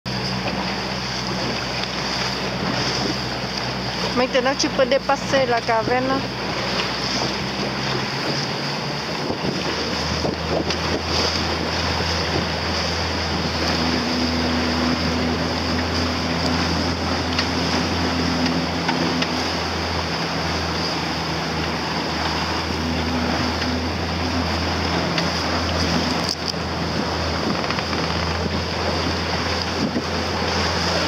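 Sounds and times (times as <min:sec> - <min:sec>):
outboard motor humming: 0:00.0 - 0:31.0
water rushing and splashing: 0:00.1 - 0:31.0
wind on microphone: 0:05.8 - 0:31.0.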